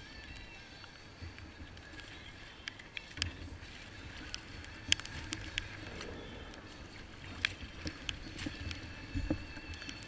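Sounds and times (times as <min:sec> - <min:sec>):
choppy water: 0:00.0 - 0:10.0
gear clicking on plastic kayak: 0:00.0 - 0:10.0
wind: 0:00.0 - 0:10.0.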